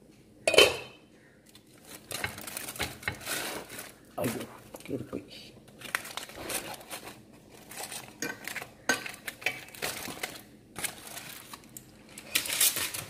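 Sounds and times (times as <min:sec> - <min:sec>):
metal clinking against pot: 0:00.5 - 0:01.0
aluminium foil crinkling: 0:01.4 - 0:13.0.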